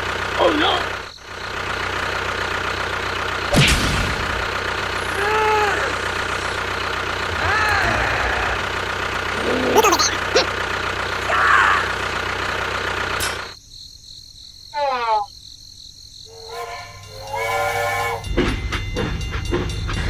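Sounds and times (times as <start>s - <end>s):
engine rumble: 0.0s - 13.6s
train whistle: 16.3s - 18.5s.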